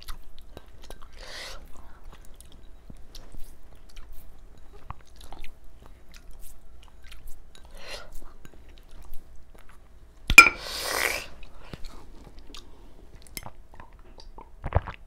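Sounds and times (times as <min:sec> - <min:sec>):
person chewing with wet mouth clicks: 0:00.0 - 0:07.4, 0:12.5 - 0:15.0.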